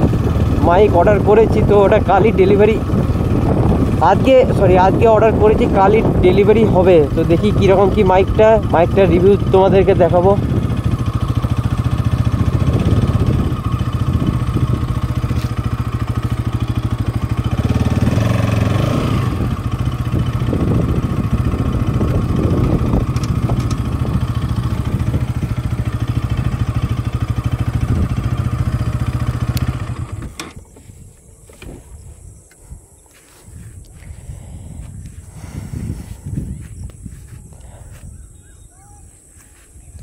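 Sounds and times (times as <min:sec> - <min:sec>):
motorcycle engine running: 0:00.0 - 0:32.4, 0:33.1 - 0:40.0.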